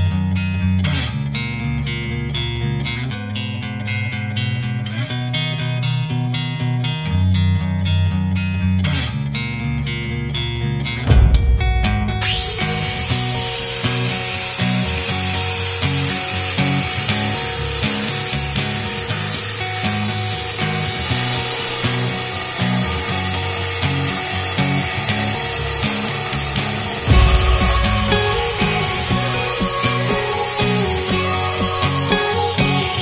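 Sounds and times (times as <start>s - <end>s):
background music with low beat: 7.4s - 17.6s, 19.5s - 33.0s
angle grinder cutting steel: 10.6s - 33.0s.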